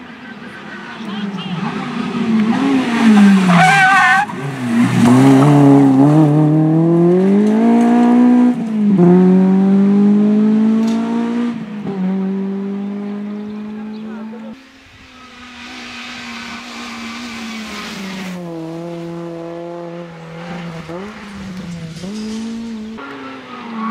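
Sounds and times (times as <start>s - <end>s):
rally car engine at full throttle: 0.0s - 23.9s
tyre squeal: 3.0s - 4.5s.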